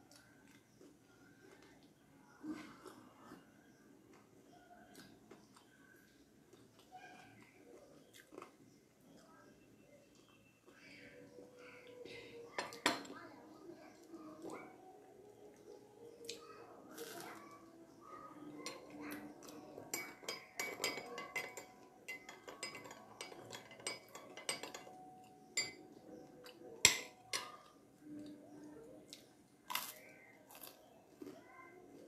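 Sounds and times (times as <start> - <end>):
teaspoon clinking against glass cup: 18.6 - 26.0.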